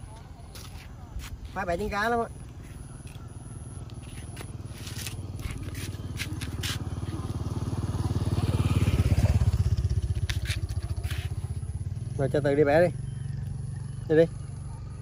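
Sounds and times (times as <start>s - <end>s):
motorbike engine passing by: 1.7s - 15.0s
light scrapes near microphone: 10.2s - 11.5s.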